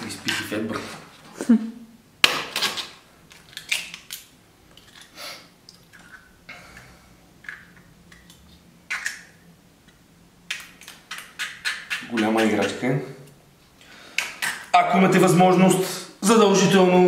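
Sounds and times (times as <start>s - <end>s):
eggshells cracking and scraping: 2.5s - 6.4s.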